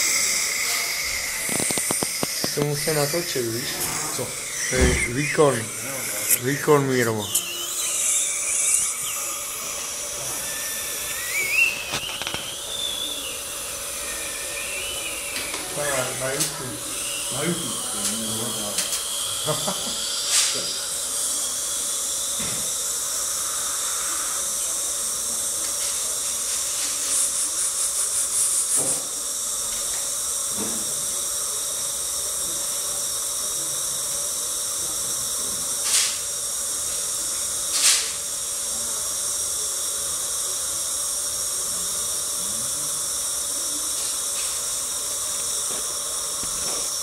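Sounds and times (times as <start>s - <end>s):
faint high whining tones: 0.0s - 27.1s
dental equipment hissing: 0.0s - 47.0s
short hissing spurts: 0.0s - 47.0s.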